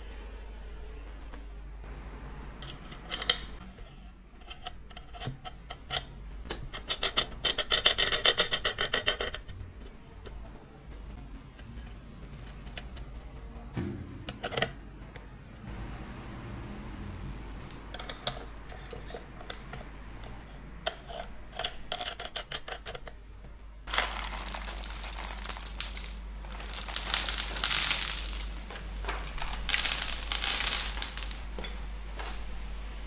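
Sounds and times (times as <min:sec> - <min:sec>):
foil bag crinkling: 0:23.9 - 0:31.4
coffee beans rattling: 0:23.9 - 0:31.6.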